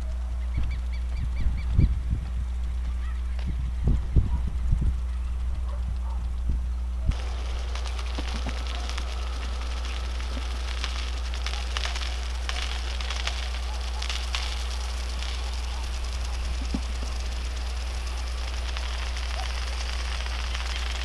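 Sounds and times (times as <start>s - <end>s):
low rumble: 0.0s - 21.0s
sprinklers spraying water: 0.0s - 21.0s
droplets spattering on leaves: 7.1s - 21.0s.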